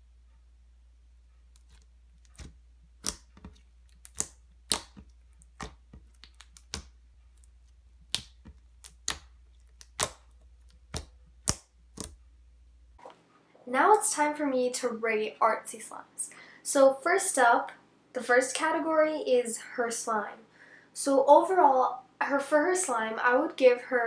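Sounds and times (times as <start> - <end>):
slime clicking and popping: 1.6 - 12.2.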